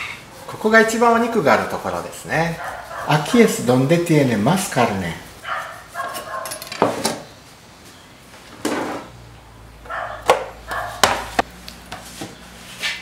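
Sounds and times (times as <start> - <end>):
bark-like calls: 2.6 - 3.4, 4.8 - 6.6, 9.8 - 11.3.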